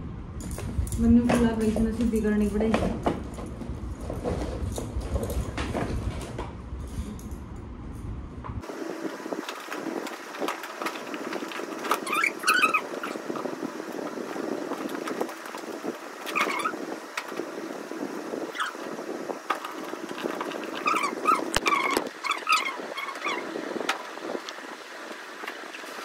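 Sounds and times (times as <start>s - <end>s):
plastic bags rustling: 8.7s - 22.3s
short wavering squeaks: 11.8s - 13.6s, 16.2s - 16.9s, 18.5s - 19.0s, 19.7s - 23.6s.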